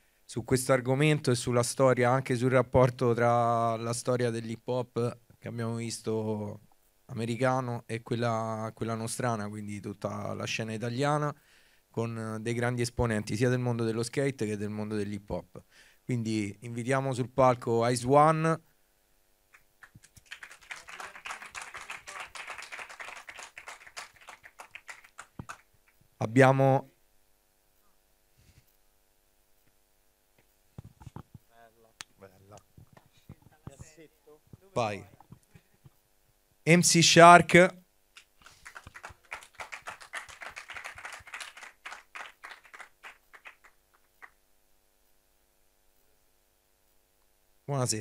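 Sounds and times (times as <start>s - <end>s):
audience applauding: 19.8s - 25.7s, 38.4s - 44.4s.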